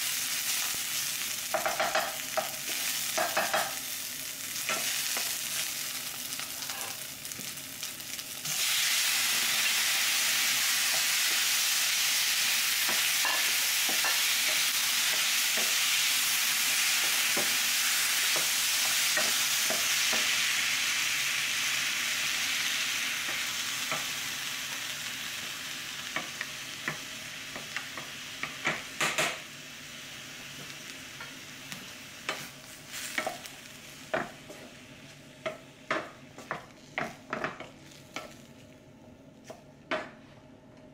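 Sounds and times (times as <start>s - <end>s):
vegetables sizzling in a pan: 0.0s - 38.9s
wooden spatula stirring and tapping: 35.4s - 38.4s.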